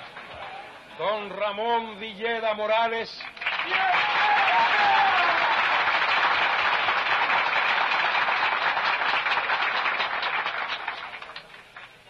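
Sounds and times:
large crowd applauding: 0.0 - 0.6, 3.2 - 12.0.

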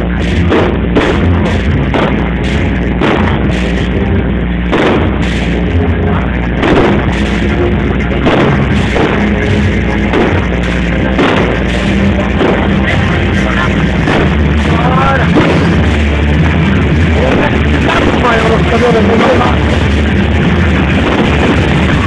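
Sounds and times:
fireworks banging: 0.0 - 22.0
loud music with heavy bass: 0.0 - 22.0.

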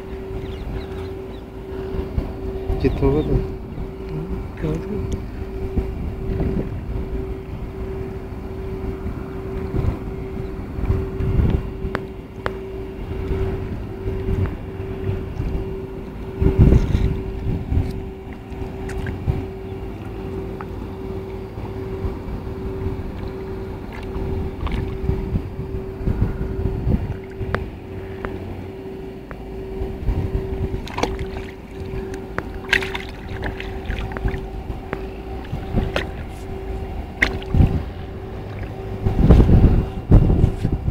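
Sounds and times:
steady hum: 0.0 - 40.9
wind buffeting microphone: 0.0 - 40.9
water splashing: 23.1 - 25.5, 30.7 - 39.7.

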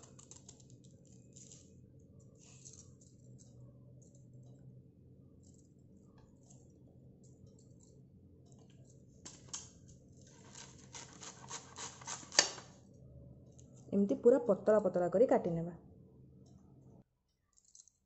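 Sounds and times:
knife slicing on steel plate: 10.4 - 12.7.

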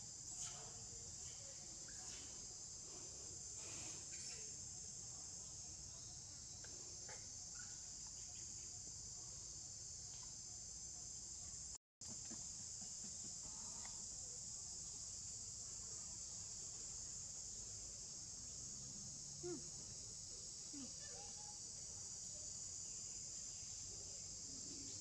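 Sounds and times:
insects droning: 0.0 - 25.0.

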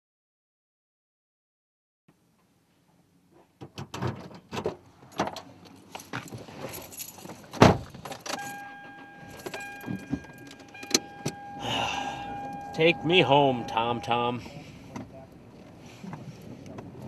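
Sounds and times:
keys jangling: 5.2 - 11.5
car door shutting: 7.5 - 14.0
car warning chime: 8.3 - 14.8.

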